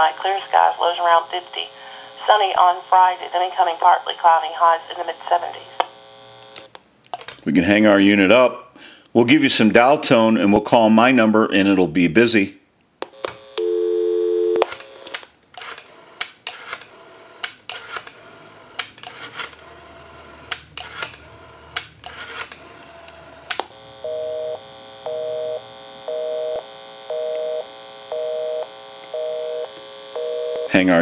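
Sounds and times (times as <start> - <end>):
telephone dial tone: 13.1 - 30.7
busy signal beeping: 13.6 - 14.6, 24.0 - 30.7
rotary dial clicking: 14.6 - 23.7.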